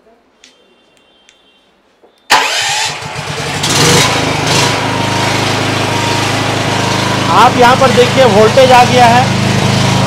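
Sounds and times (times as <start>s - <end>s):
engine cranking and running: 2.3s - 10.0s.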